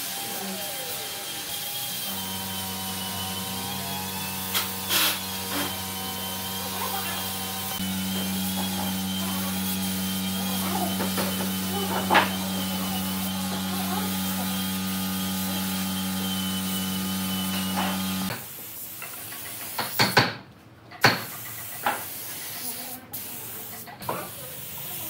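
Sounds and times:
electric motor humming: 0:00.0 - 0:18.3.

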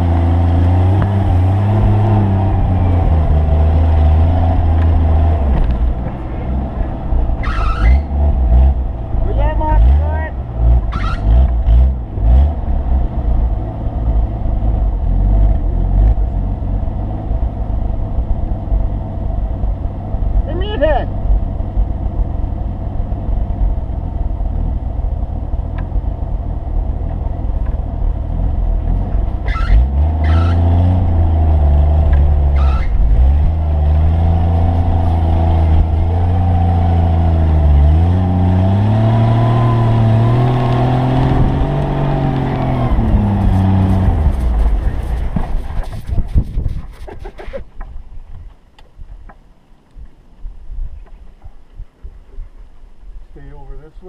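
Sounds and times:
engine revving under load: 0:00.0 - 0:17.5, 0:28.4 - 0:46.0.

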